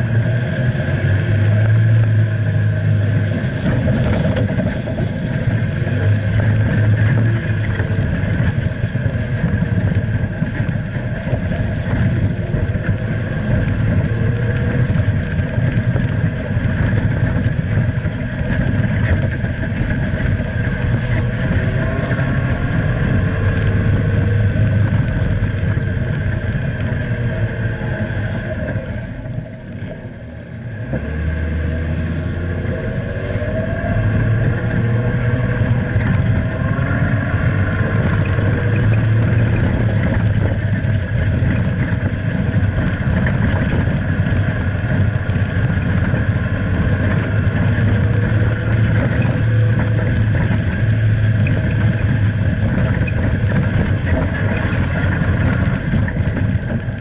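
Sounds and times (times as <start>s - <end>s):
tyres churning through sand: 0.0s - 29.6s
low engine drone: 0.0s - 57.0s.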